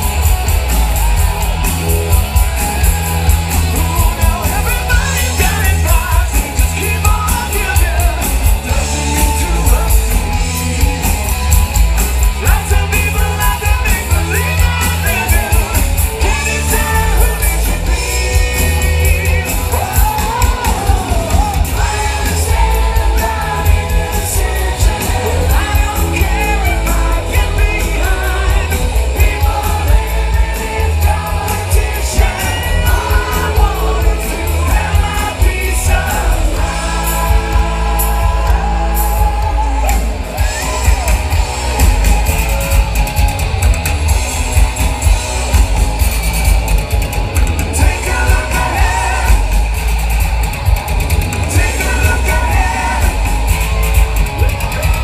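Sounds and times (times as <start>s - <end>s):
live rock band playing: 0.0s - 55.0s
man singing: 3.8s - 10.4s, 12.4s - 39.6s, 47.7s - 49.6s, 51.4s - 53.4s.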